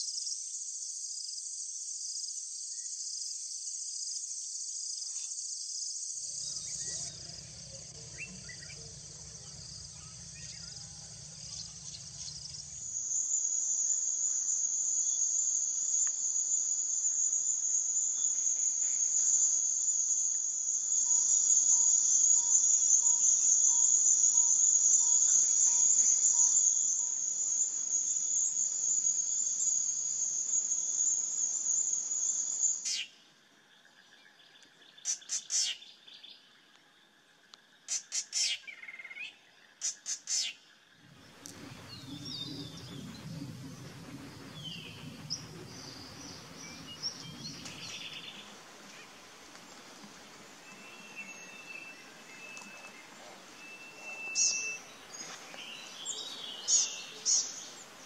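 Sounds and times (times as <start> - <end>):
insect chorus trilling: 0.0 - 58.0
short bird calls: 35.0 - 35.9
owl whistled notes: 50.7 - 55.0.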